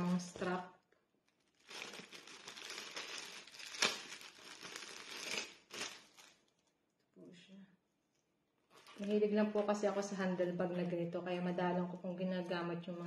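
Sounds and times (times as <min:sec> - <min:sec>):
plastic packaging crinkling: 0:01.2 - 0:06.7.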